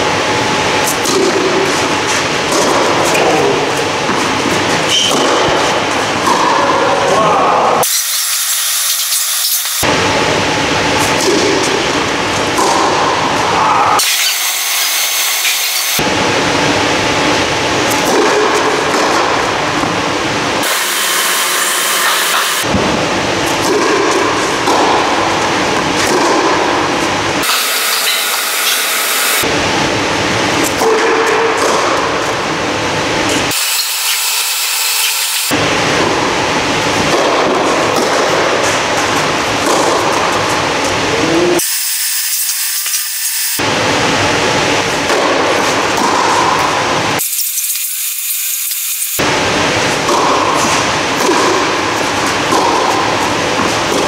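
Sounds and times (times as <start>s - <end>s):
machine-like rushing noise: 9.6s - 41.6s.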